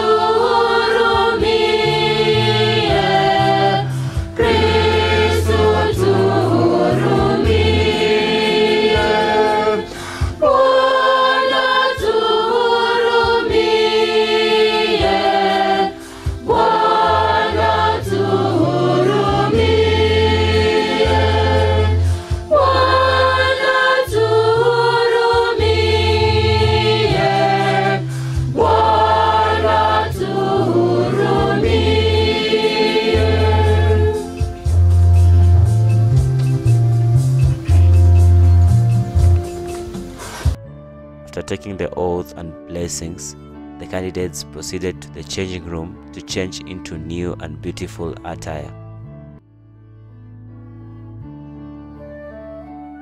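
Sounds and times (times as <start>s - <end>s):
choir singing a hymn: 0.0s - 35.0s
steady bass accompaniment: 0.0s - 49.4s.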